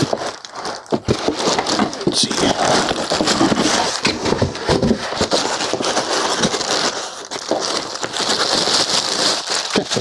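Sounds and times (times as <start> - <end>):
plastic bag rustling: 0.0 - 10.0.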